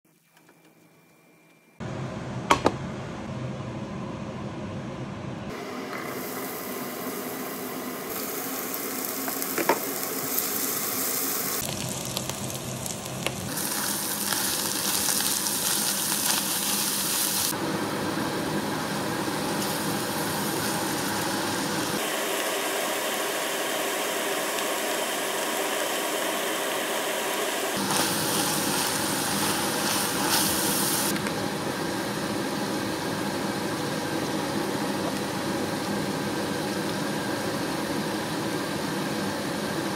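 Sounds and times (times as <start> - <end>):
food sizzling in a frying pan: 5.9 - 17.6, 18.2 - 31.1.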